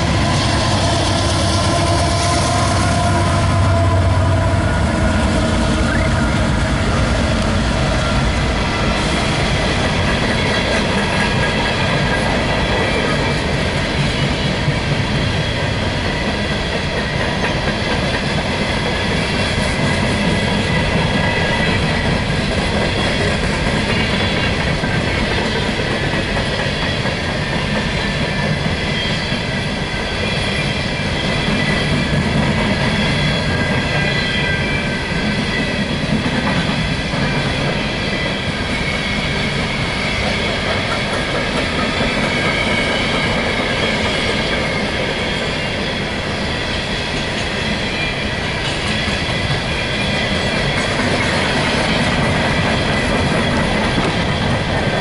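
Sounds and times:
high-pitched wheel squealing: 0.0 - 9.1
train wheels rumbling on rails: 0.0 - 55.0.

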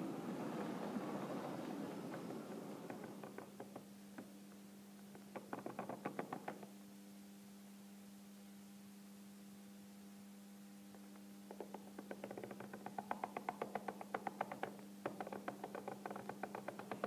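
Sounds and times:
low electrical hum: 0.0 - 17.0
light clicks and knocks: 0.5 - 6.7, 10.9 - 17.0.

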